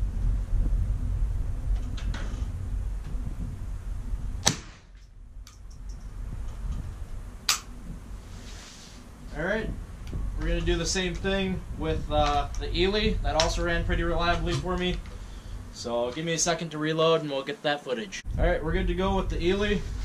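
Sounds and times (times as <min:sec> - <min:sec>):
wind rumbling on microphone: 0:00.0 - 0:16.7, 0:18.1 - 0:20.0
rifle shots cracking: 0:04.4 - 0:05.0.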